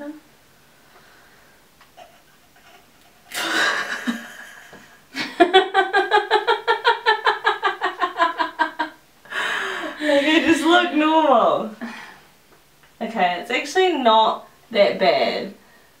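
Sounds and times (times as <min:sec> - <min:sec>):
women laughing: 0:02.6 - 0:10.4.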